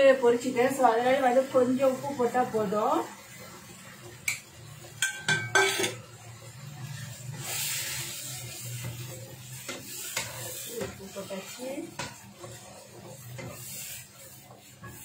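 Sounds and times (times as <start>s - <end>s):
paste sizzling in oil: 0.0s - 15.0s
wooden spatula scraping a wok: 5.4s - 15.0s.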